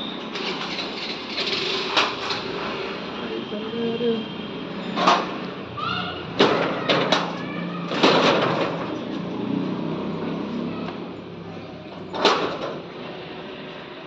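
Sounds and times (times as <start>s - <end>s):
metal shutter rattle: 0.1s - 2.6s, 6.4s - 9.2s, 12.0s - 12.9s.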